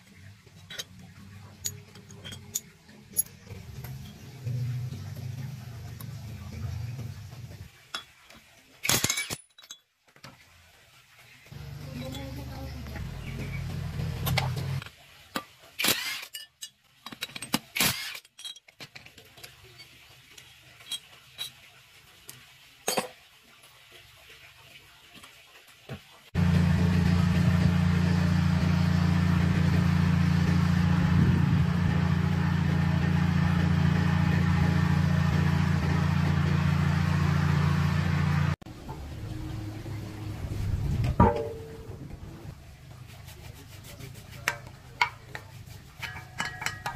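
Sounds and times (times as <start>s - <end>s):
metallic clinks of tools: 1.6s - 4.5s
low machine drone: 26.4s - 42.5s.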